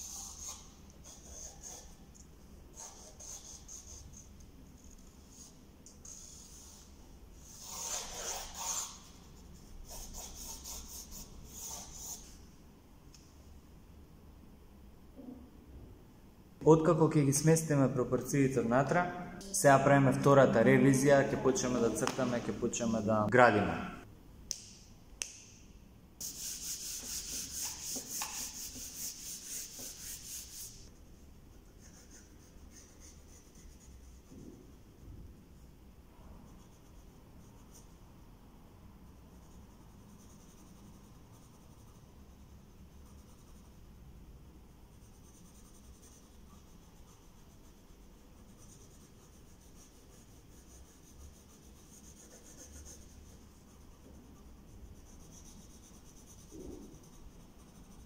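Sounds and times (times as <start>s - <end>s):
pencil scratching on paper: 0.0s - 12.4s, 26.2s - 34.3s, 39.3s - 44.0s, 44.9s - 58.0s.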